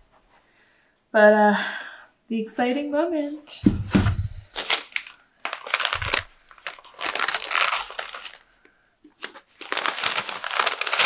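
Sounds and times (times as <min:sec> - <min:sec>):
paper rustling and crinkling: 0:03.6 - 0:08.5, 0:09.1 - 0:11.0.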